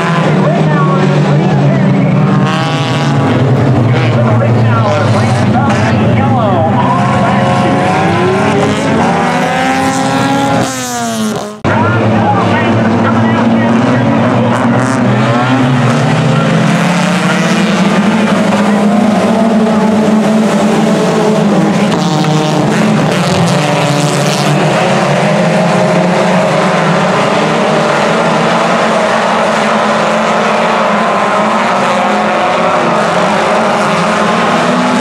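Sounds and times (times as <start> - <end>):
race car engines: 0.0 - 35.0.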